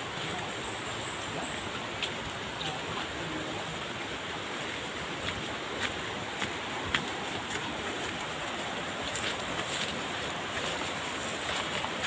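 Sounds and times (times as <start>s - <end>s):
flowing water rushing: 0.0s - 12.0s
footsteps on dirt path: 0.0s - 12.0s.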